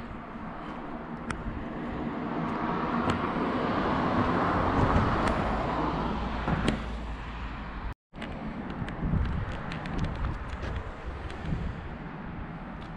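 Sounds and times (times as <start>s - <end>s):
vehicle passing: 0.0s - 7.9s.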